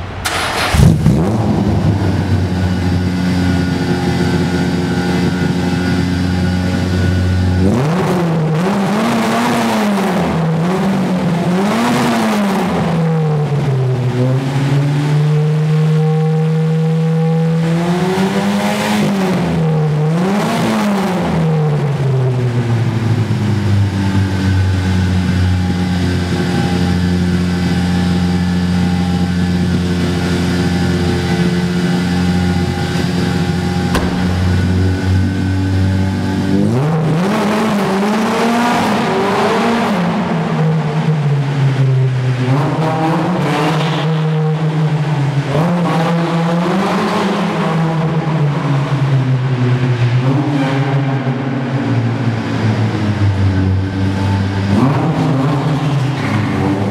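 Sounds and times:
rally car engine idling and revving: 0.1 - 56.9.

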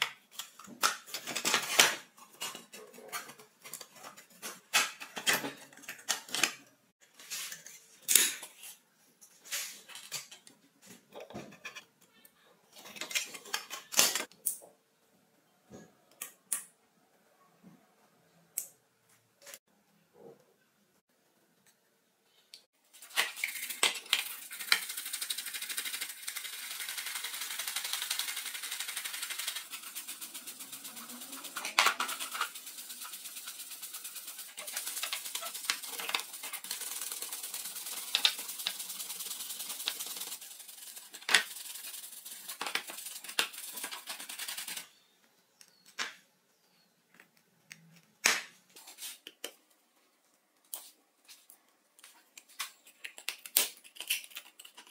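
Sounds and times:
brush scrubbing plastic: 23.0 - 44.8.

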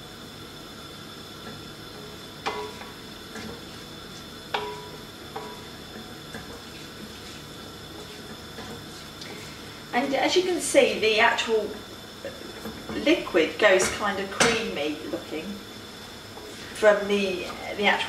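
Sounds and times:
rice simmering hiss: 0.0 - 18.0
wooden spoon knocking pot: 2.4 - 3.5, 4.5 - 5.7.

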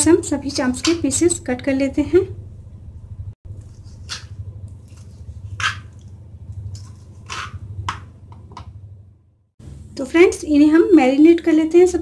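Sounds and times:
low hum: 0.0 - 10.2
knife cutting on wooden board: 5.0 - 5.9.

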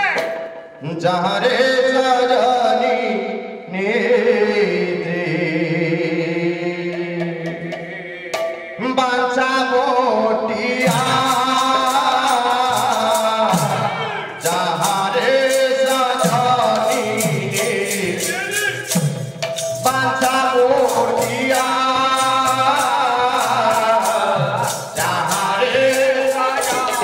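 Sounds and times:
drum beat: 0.0 - 0.8, 6.8 - 8.9, 10.8 - 27.0
small hand cymbals: 10.8 - 27.0
voices chanting long notes: 10.9 - 19.0, 19.7 - 27.0.

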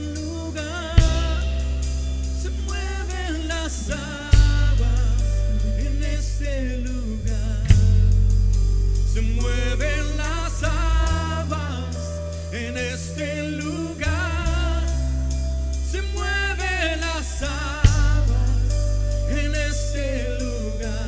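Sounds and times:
person singing: 0.0 - 8.1, 9.0 - 21.0
worship band music: 0.0 - 21.0.

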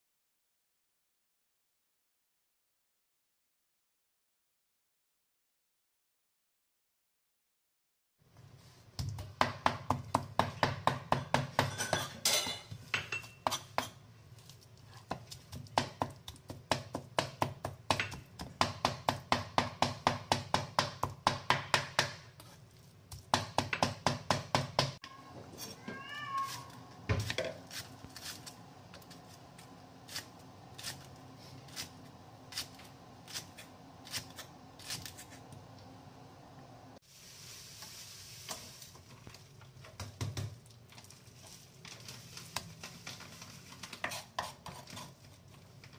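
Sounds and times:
cat meow: 25.0 - 26.8.

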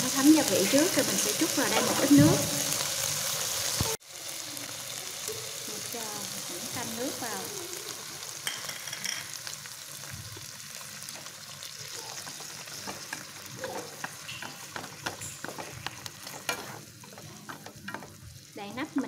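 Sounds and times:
meat sizzling in a frying pan: 0.0 - 19.0
chopsticks stirring: 11.9 - 18.4.

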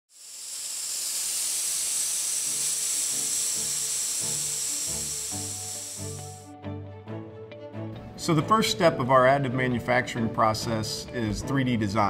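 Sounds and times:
high hiss: 0.1 - 6.5.

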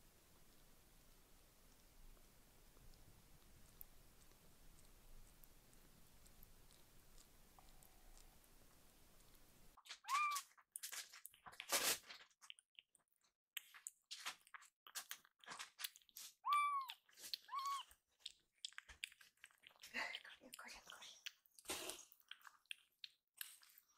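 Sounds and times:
kittens chewing wetly: 0.1 - 23.9
kitten meowing: 9.9 - 10.5, 16.4 - 17.9.

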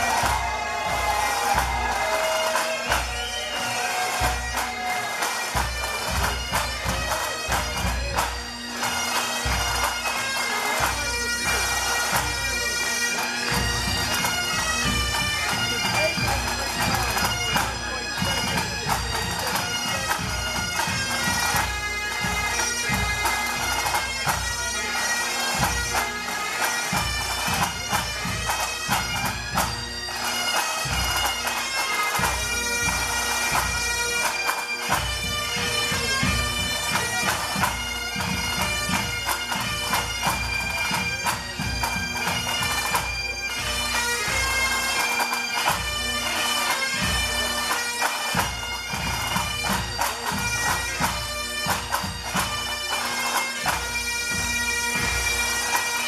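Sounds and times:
drums beating: 0.0 - 24.8, 26.8 - 44.6
bagpipes playing melody: 0.0 - 56.0.

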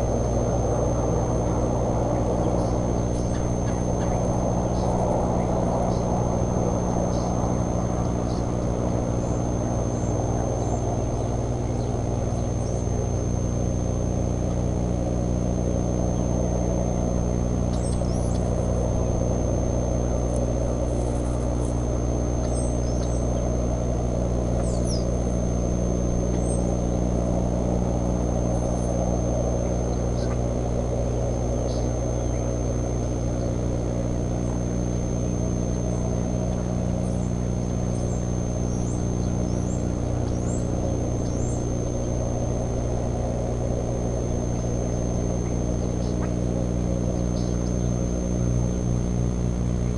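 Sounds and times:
steady low hum: 0.0 - 49.9
thin high whine: 0.0 - 49.9
bird chirps: 2.2 - 6.1, 7.1 - 8.6, 17.6 - 18.7, 22.4 - 23.6, 24.6 - 25.2, 26.3 - 26.7, 29.6 - 30.5, 31.6 - 32.6, 37.0 - 41.8, 44.5 - 46.4, 47.2 - 48.0.

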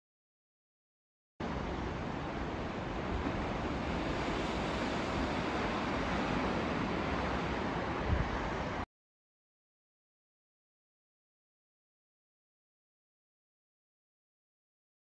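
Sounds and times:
waves breaking on rocks: 1.5 - 8.8
wind on microphone: 2.9 - 8.8.

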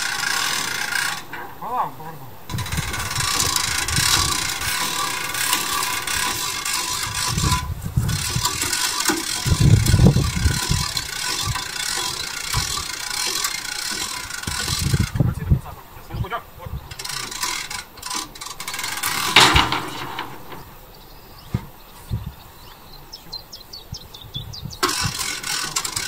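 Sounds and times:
hand winch ratcheting: 0.0 - 15.4, 16.9 - 20.8, 24.8 - 26.0.

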